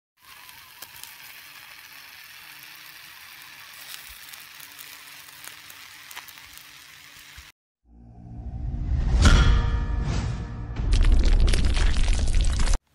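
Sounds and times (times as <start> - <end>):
fire crackles and pops: 0.2 - 7.5
fire hissing: 0.2 - 7.6.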